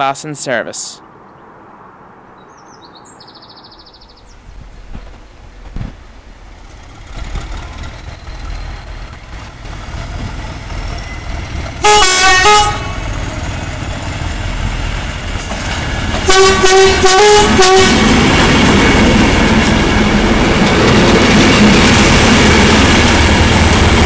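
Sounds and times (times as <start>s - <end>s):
train running rumble: 4.2s - 24.0s
train horn blasts: 11.8s - 13.1s, 16.2s - 18.2s.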